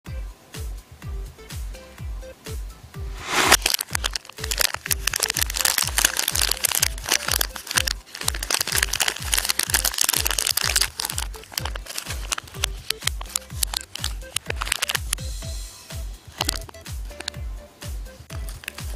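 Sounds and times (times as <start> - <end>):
background music with bass beat: 0.1 - 18.9
plastic candy wrapper crinkling: 3.3 - 15.2, 16.4 - 17.3, 18.4 - 18.9.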